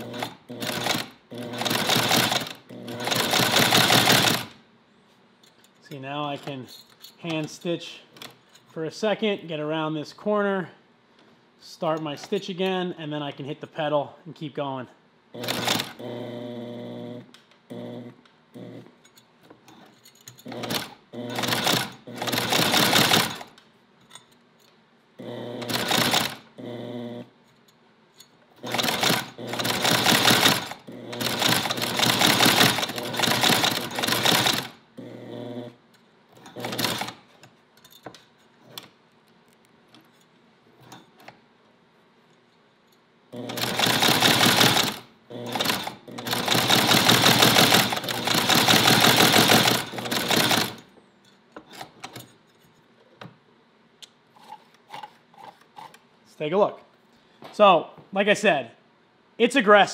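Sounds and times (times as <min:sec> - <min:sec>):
leather sewing machine clattering: 0:00.0 - 0:04.5, 0:15.4 - 0:16.0, 0:19.7 - 0:23.5, 0:25.6 - 0:26.4, 0:28.6 - 0:34.7, 0:36.4 - 0:37.3, 0:43.4 - 0:50.8.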